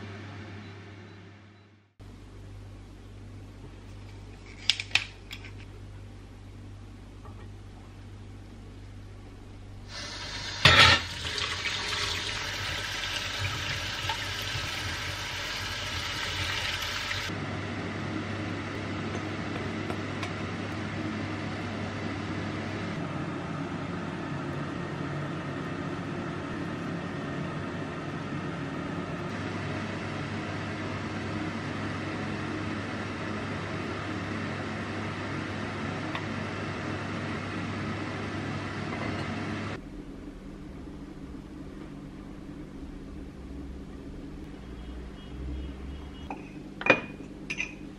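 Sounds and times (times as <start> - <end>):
tap water running into colander: 9.9 - 17.3
water poured into pot: 10.2 - 17.3.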